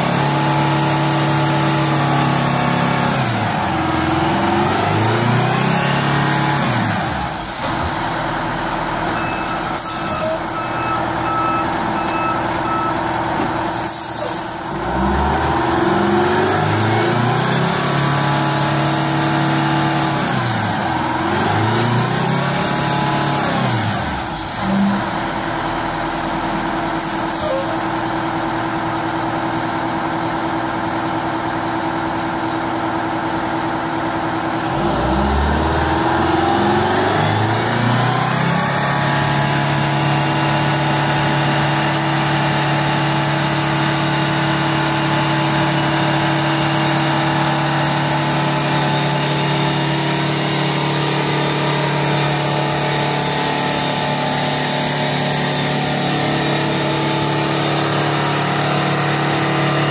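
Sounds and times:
diesel engine under load: 0.0s - 59.9s
brief steady tone: 9.1s - 13.0s
short air hisses: 13.7s - 14.5s.

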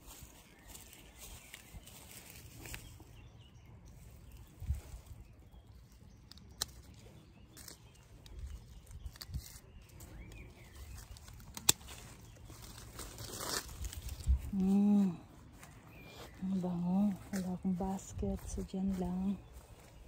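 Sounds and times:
pruning shears snipping: 11.1s - 13.9s.

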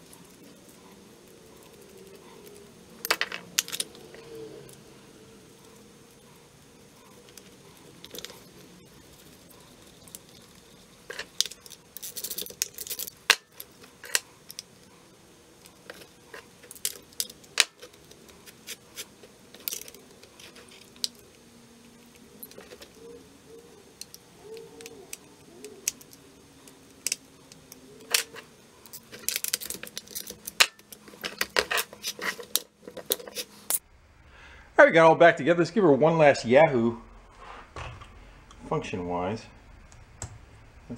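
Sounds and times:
metal parts clicking and clinking: 1.3s - 4.3s, 7.2s - 14.8s, 15.6s - 21.4s, 22.0s - 23.2s, 24.0s - 33.8s.

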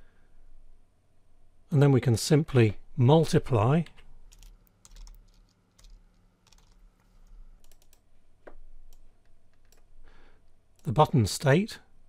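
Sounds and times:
low electrical hum: 0.0s - 12.0s
keyboard and mouse clicks: 3.9s - 9.9s.

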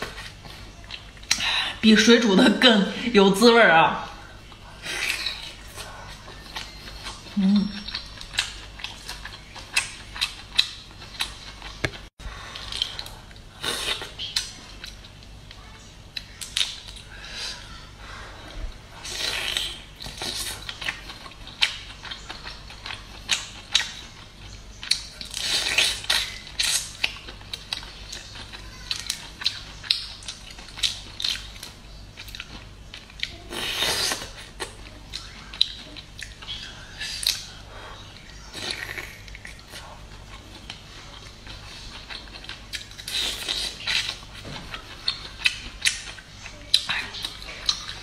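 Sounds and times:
wet chewing and lip smacks: 4.5s - 15.3s, 19.2s - 33.4s, 34.0s - 37.6s, 38.2s - 48.0s.

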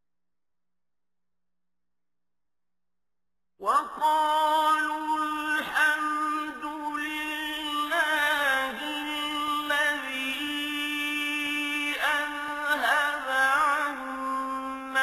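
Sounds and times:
person chanting recitation: 3.6s - 15.0s.

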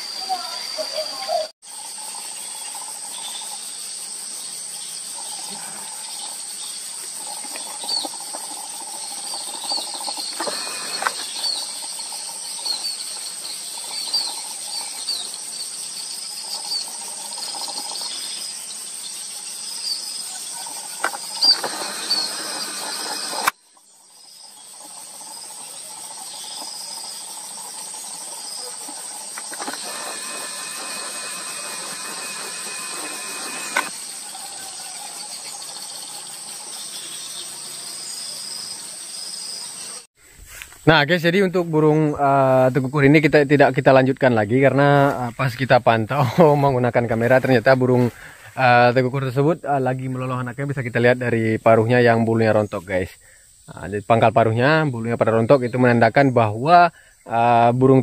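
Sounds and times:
insect trilling: 0.0s - 40.1s
bird chirps: 4.8s - 27.3s.

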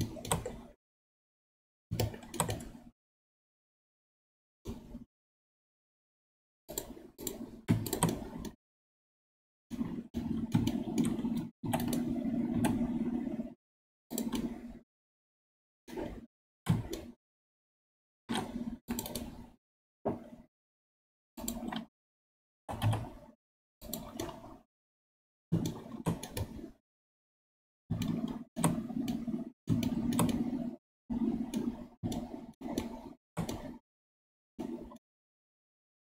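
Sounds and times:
computer keyboard typing: 0.0s - 0.7s, 2.0s - 2.8s, 6.7s - 8.6s, 10.4s - 13.3s, 18.3s - 19.4s, 22.7s - 23.1s, 27.9s - 33.8s.

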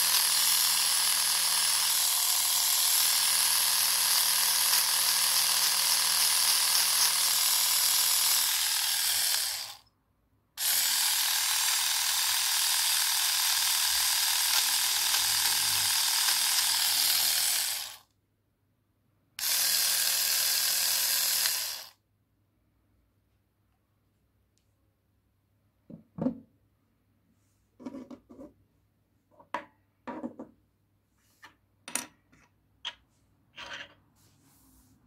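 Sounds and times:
small motor high whir: 0.0s - 9.8s, 10.6s - 18.0s, 19.4s - 22.0s.

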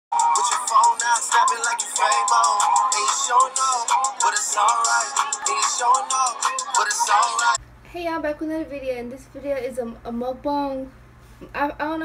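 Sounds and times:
hip-hop track with vocals: 0.1s - 7.6s.

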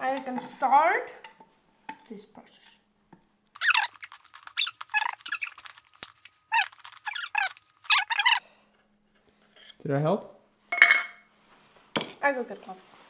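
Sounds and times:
metal stirrer squeaking in tin can: 3.6s - 8.4s.

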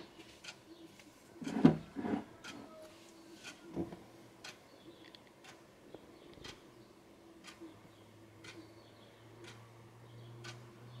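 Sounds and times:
clock ticking faintly: 0.2s - 0.8s, 2.4s - 2.6s, 4.4s - 5.7s, 6.3s - 6.7s, 7.4s - 11.0s.

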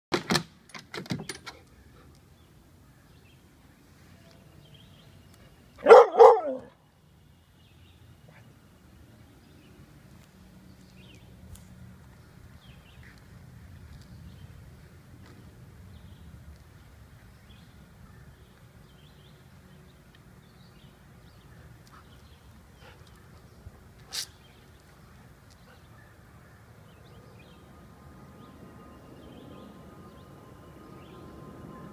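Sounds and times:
dog barking: 5.8s - 6.7s.

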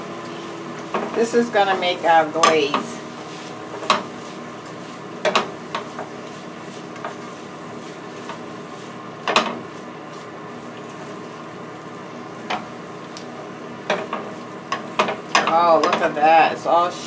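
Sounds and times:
carrots sizzling in a skillet: 0.0s - 17.0s
utensil knocking against pan: 5.2s - 5.9s.

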